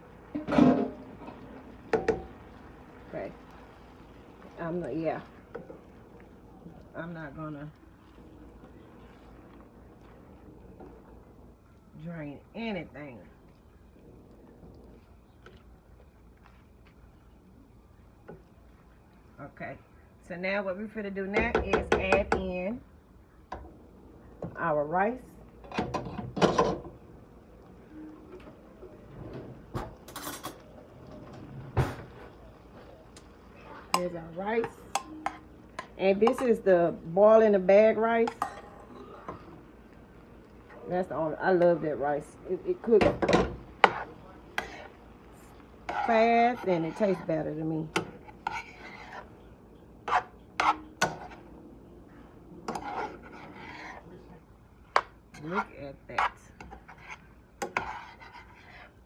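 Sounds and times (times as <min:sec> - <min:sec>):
metal spoon scraping skillet: 0:43.0 - 0:45.0, 0:45.8 - 0:51.5, 0:52.6 - 0:54.2, 0:54.9 - 0:59.0.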